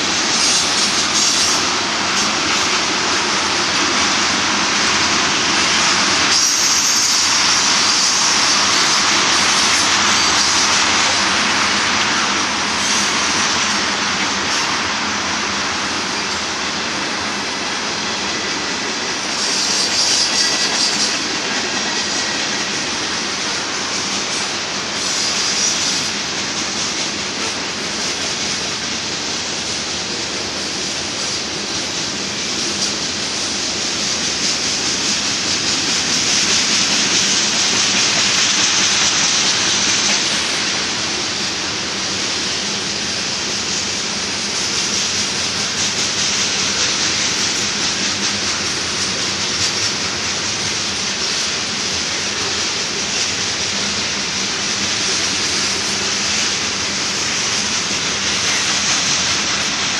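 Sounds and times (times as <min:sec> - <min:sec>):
train wheels rolling on rails: 0:00.0 - 0:59.9.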